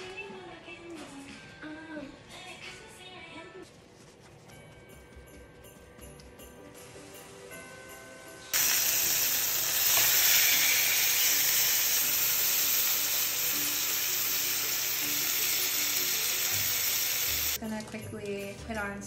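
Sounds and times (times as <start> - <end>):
chicken sizzling in frying pan: 8.5 - 17.6.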